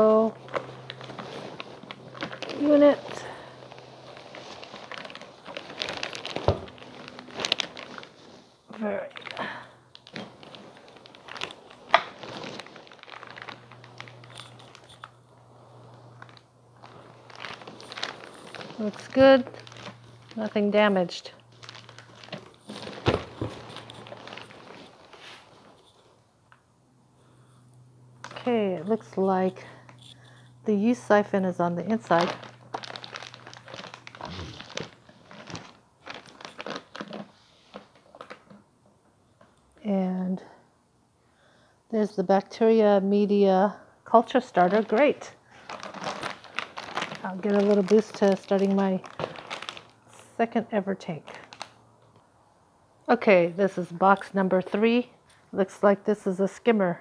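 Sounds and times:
packing peanuts shifting: 0:00.0 - 0:25.9, 0:31.8 - 0:38.6, 0:44.4 - 0:50.3, 0:51.1 - 0:51.8
plastic bag crinkling: 0:00.0 - 0:26.1, 0:28.2 - 0:31.2, 0:31.8 - 0:38.7, 0:44.3 - 0:50.4, 0:51.0 - 0:51.8.

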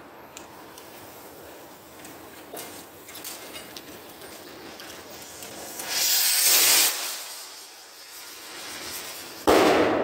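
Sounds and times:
firework rocket launching hiss: 0:04.4 - 0:10.0
firework bang: 0:05.5 - 0:10.0.

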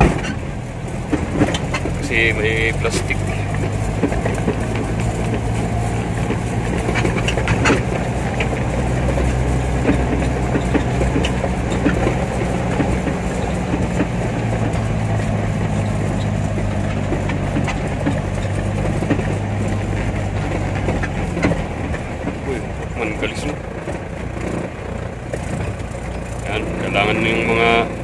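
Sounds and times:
small clicks and knocks: 0:00.0 - 0:02.1, 0:02.8 - 0:26.5
vehicle engine humming: 0:00.0 - 0:28.0.

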